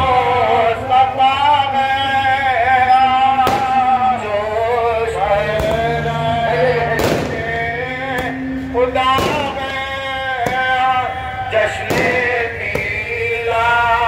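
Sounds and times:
man singing devotional song: 0.0s - 14.0s
firecracker bangs: 3.4s - 4.1s, 5.5s - 6.0s, 6.9s - 8.4s, 9.0s - 13.3s.

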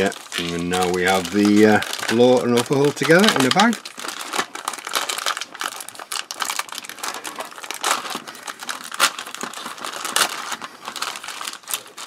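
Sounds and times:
plastic bag crinkling and rustling: 0.0s - 12.0s.

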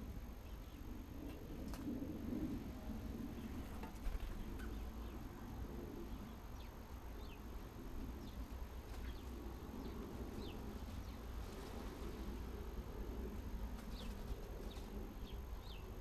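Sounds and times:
steady low hum: 0.0s - 16.0s
small birds chirping: 3.3s - 12.5s, 13.7s - 16.0s.

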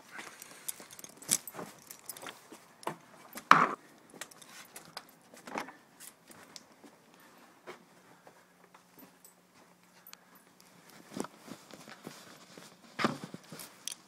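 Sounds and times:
dog collar jingling: 0.3s - 2.6s.

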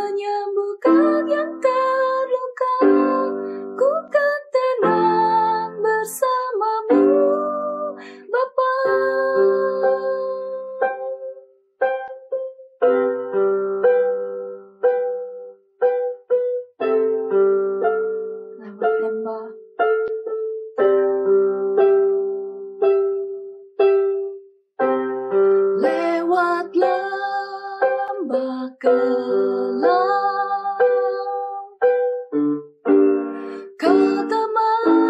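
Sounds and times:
person singing: 0.0s - 11.4s, 18.6s - 19.6s, 25.8s - 31.8s, 33.5s - 35.0s.

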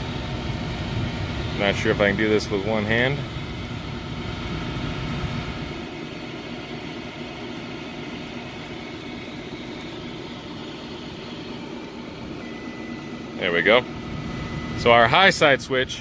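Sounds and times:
machinery drone: 0.0s - 16.0s
multimeter continuity beep: 9.0s - 15.6s.

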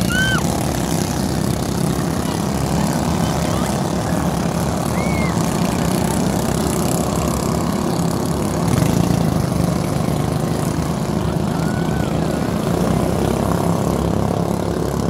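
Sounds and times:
boat engines droning: 0.0s - 15.0s.

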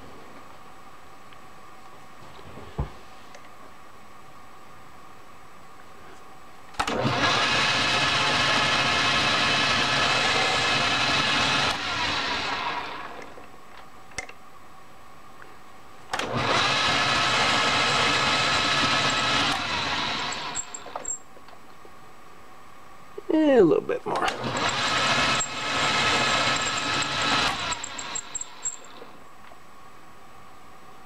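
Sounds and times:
lathe spinning down: 6.9s - 13.3s, 16.2s - 21.1s, 24.3s - 29.1s
metal lathe whining: 16.2s - 21.2s, 24.3s - 29.1s.

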